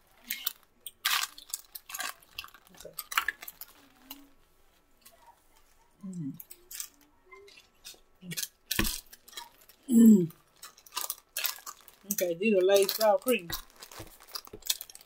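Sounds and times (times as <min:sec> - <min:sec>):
potato chips crunching: 0:00.0 - 0:04.4, 0:06.4 - 0:15.0
foil chip bag rustling: 0:00.0 - 0:04.8, 0:06.5 - 0:15.0
person humming: 0:09.9 - 0:10.3.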